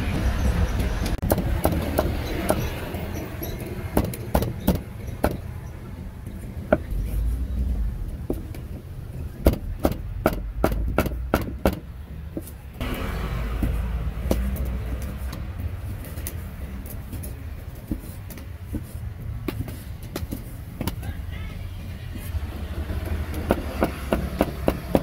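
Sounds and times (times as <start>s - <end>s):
road traffic rumbling: 0.0s - 25.0s
sharp knocks: 1.1s - 2.7s, 3.9s - 5.5s, 9.4s - 15.4s, 23.0s - 25.0s.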